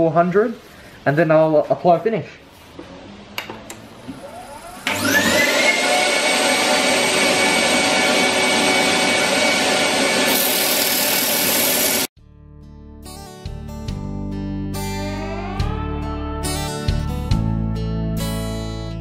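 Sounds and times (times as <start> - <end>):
wood lathe motor whine: 4.1 - 12.1
sandpaper rubbing spinning wood: 8.2 - 12.1.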